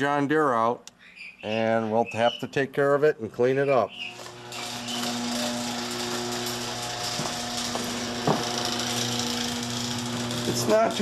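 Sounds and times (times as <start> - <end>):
garage door opener motor hum: 3.9 - 11.0.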